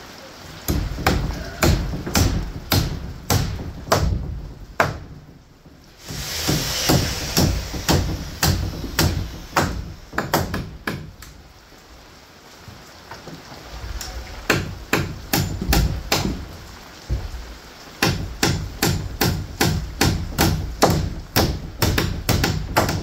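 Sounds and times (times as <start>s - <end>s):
hammer striking nails into wood: 0.7s - 5.3s, 6.0s - 11.3s, 14.5s - 16.4s, 18.0s - 23.0s.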